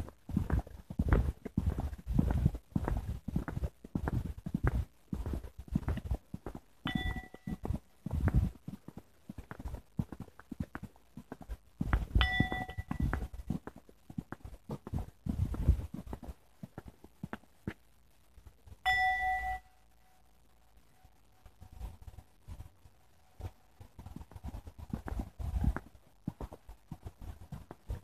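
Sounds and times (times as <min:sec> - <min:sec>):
footsteps on a path: 0:00.0 - 0:17.8, 0:23.4 - 0:28.0
bell-like dings: 0:06.9 - 0:07.7, 0:12.2 - 0:13.2, 0:18.8 - 0:20.2.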